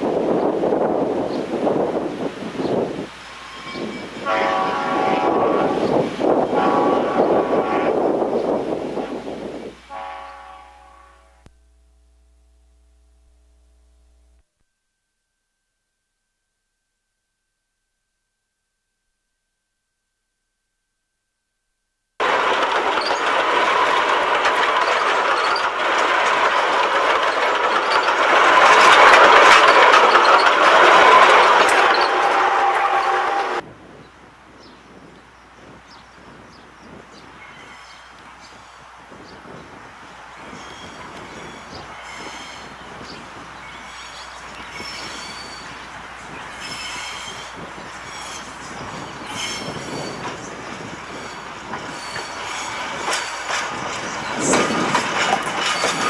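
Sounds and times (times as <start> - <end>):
moving train: 0.0 - 13.9, 22.2 - 56.0
wind: 0.0 - 14.5, 22.2 - 56.0
locomotive air horn: 3.8 - 8.1, 9.9 - 11.5, 32.1 - 33.6
faint steady whine: 10.8 - 15.8.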